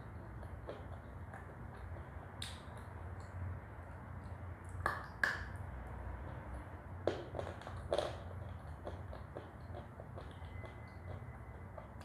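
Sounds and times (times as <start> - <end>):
low steady hum: 0.0 - 12.0
wet mouth eating sounds: 6.2 - 10.4.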